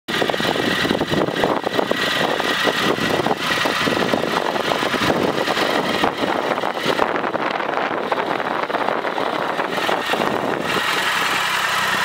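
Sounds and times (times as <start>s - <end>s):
motorcycle engine idling: 0.1s - 12.0s.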